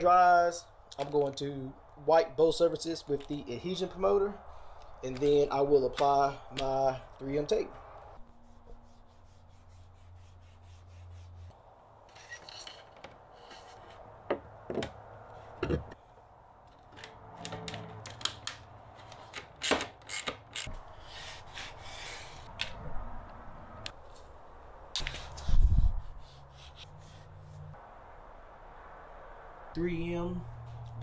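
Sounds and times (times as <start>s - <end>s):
hand rubbing and wiping: 8.2s - 11.6s.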